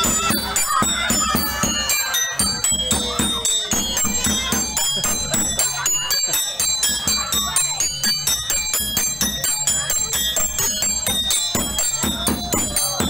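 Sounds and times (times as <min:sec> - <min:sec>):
hand drum beaten fast: 0:00.0 - 0:05.7, 0:10.2 - 0:13.0
metallic jingling and ringing strikes: 0:00.0 - 0:13.0.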